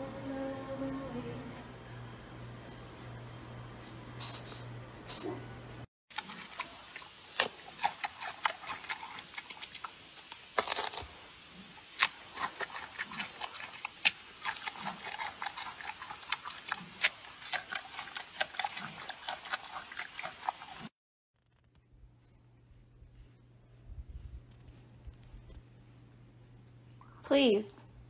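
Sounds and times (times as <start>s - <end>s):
panda chewing with wet smacking: 6.2s - 10.4s, 12.0s - 20.8s
crunching: 9.7s - 11.1s.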